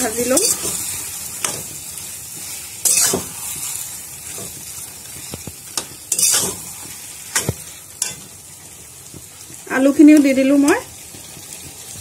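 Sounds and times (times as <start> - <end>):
fish sizzling in a pan: 0.0 - 12.0
spoon scraping a pan: 0.1 - 8.3.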